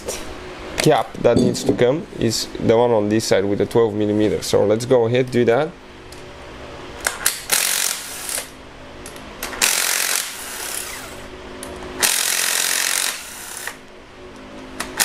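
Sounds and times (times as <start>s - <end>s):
handheld power tool bursts: 9.6s - 11.2s, 12.0s - 13.8s.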